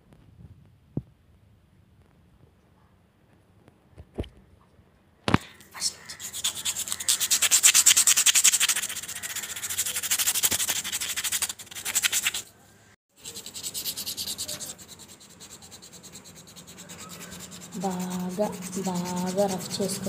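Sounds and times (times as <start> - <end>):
abrasive rubbing on cardboard: 6.0 - 12.5, 13.2 - 20.0.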